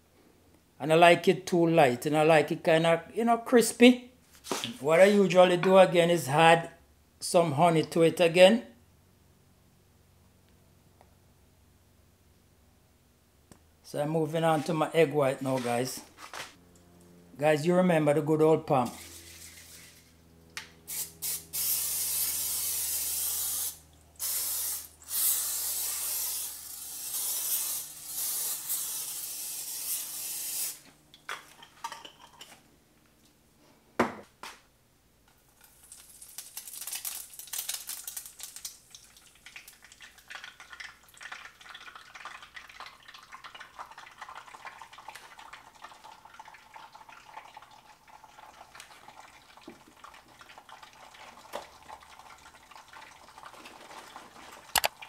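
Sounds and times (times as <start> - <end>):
cooking spray hissing: 20.8 - 30.9
egg sizzling in a pan: 35.6 - 47.6.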